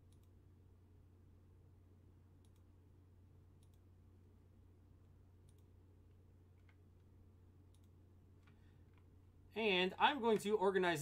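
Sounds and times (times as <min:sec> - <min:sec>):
computer mouse clicks: 0:00.0 - 0:00.4, 0:02.4 - 0:02.7, 0:03.6 - 0:03.9, 0:05.4 - 0:05.7, 0:07.7 - 0:09.1
low steady hum: 0:00.0 - 0:11.0.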